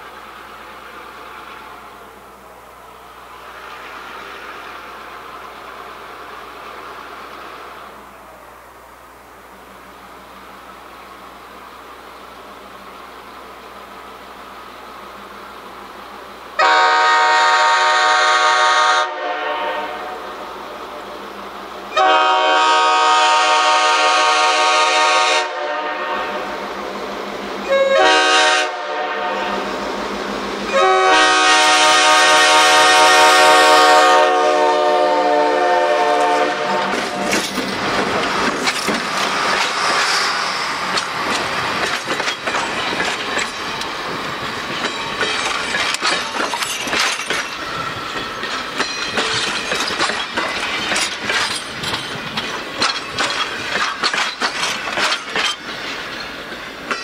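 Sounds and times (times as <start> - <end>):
locomotive air horn blasts: 16.6 - 20.2, 22.0 - 26.6, 27.7 - 29.7, 30.7 - 37.3
train wheels clickety-clack: 36.1 - 57.0.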